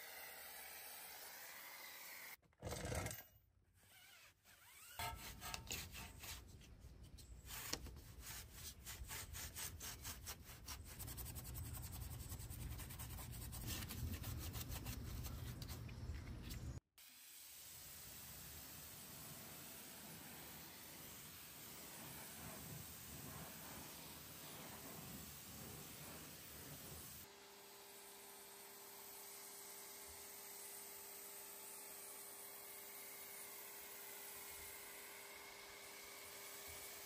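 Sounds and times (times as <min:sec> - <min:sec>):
brush scrubbing wheel: 0:05.0 - 0:16.0, 0:19.1 - 0:27.3
foam cannon hissing: 0:17.5 - 0:27.3.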